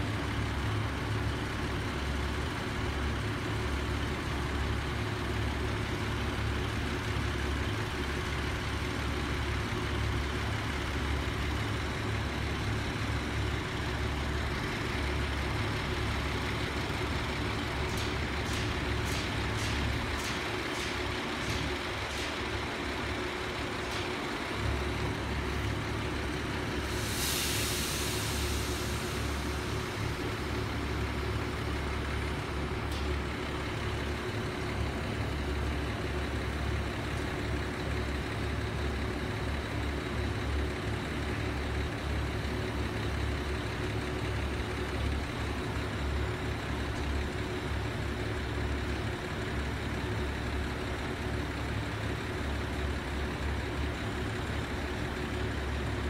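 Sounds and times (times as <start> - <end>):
diesel engine idling: 0.0 - 56.0
compressed air hiss: 26.7 - 30.4.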